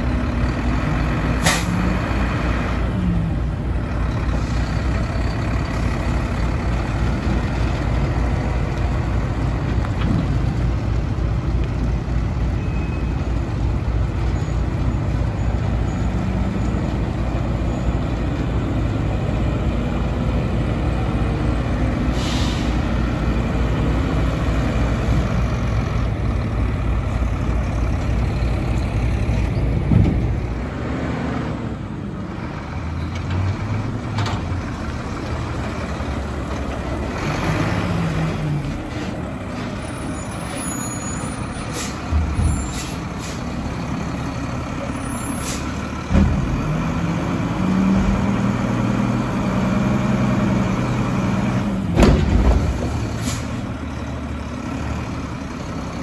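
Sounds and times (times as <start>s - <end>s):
garbage truck engine rumbling: 0.0s - 56.0s.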